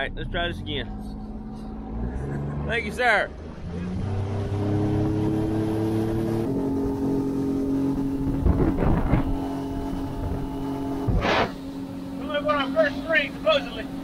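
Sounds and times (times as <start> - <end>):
outboard motor running: 1.0 - 14.0
brief rushing noise: 11.1 - 11.6.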